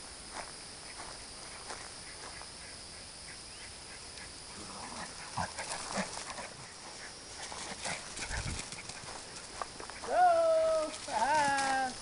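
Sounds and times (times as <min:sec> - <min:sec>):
dogs play-fighting noises: 0:01.5 - 0:10.0.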